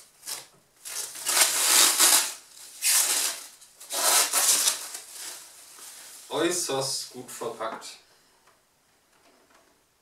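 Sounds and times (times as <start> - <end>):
plastic bag rustling: 0.0 - 6.8.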